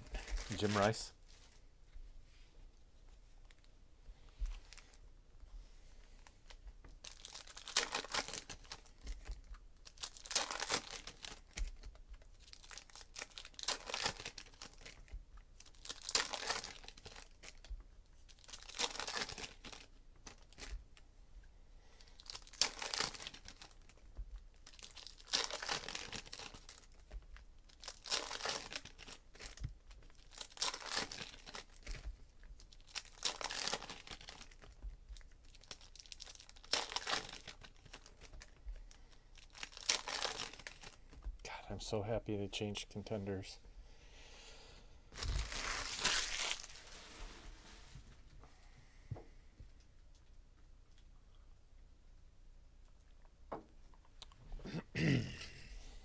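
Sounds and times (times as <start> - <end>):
foil wrappers crinkling and tearing: 0.0 - 1.6, 6.5 - 20.8, 22.0 - 41.2, 45.1 - 47.8.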